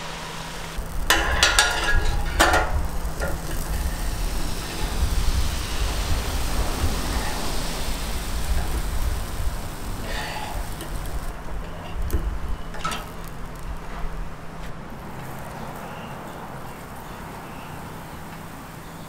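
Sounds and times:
low rumble: 0.0s - 14.5s
faint steady hum: 0.0s - 19.0s.

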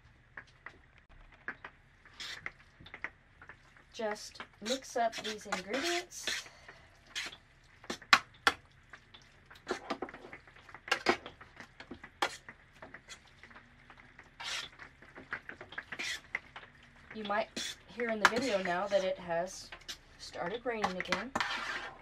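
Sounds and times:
fork stirring wet mixture: 2.2s - 2.6s, 3.4s - 22.0s
fork scraping metal pan: 4.6s - 6.5s, 7.1s - 8.0s, 12.2s - 12.4s, 14.4s - 14.8s, 15.9s - 16.3s, 17.4s - 19.2s, 19.8s - 20.0s, 20.8s - 22.0s.

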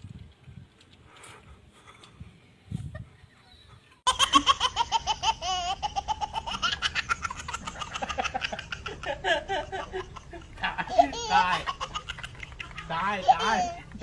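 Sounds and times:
toddler giggling: 4.1s - 13.8s.

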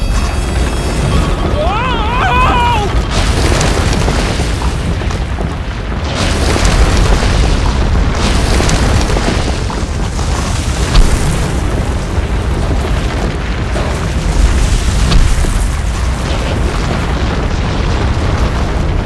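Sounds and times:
crackles and pops: 0.0s - 19.0s
deep explosion rumble: 0.0s - 19.0s.

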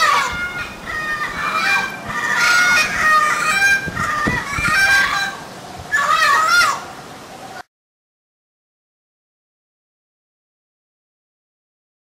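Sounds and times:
parrots honking calls: 0.0s - 7.0s.

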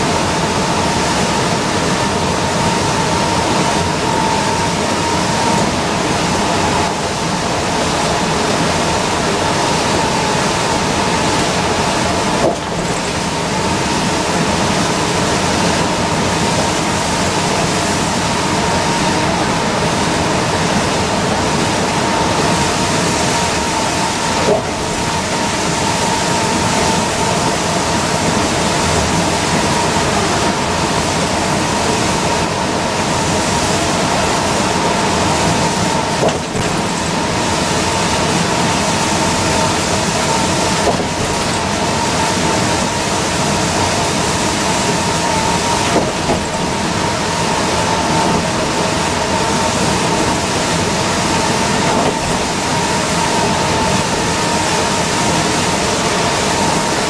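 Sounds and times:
bus engine and tyres roar: 0.0s - 57.0s
constant whine: 0.0s - 57.0s.

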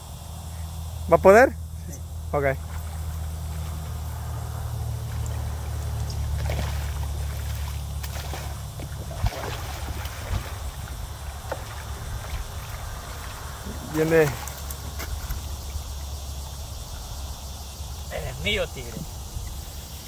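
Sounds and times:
steady low hum: 0.0s - 20.0s
fish thrashing and splashing: 2.6s - 17.2s.

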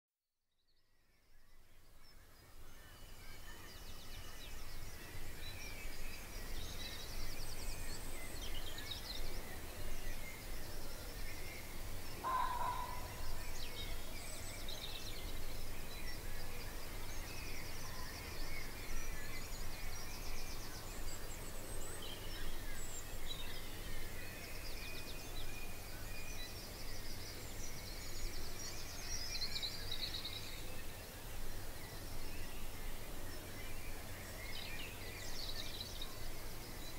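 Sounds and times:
songbirds singing: 0.8s - 36.9s
loud low bird call: 12.2s - 13.3s.

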